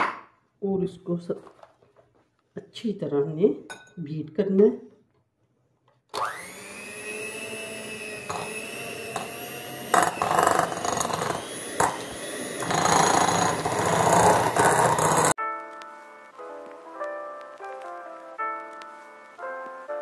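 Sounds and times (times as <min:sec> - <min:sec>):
electric hand mixer whining: 0:06.1 - 0:15.4.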